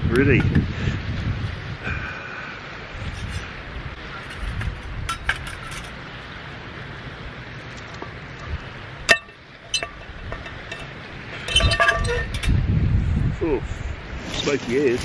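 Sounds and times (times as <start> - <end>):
metallic clinks from stove: 9.1 - 12.5.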